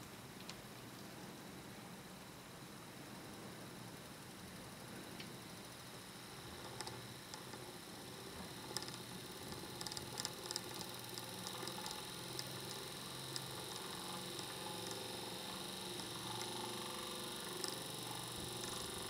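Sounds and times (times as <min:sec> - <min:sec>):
small motor humming: 0:05.5 - 0:19.0.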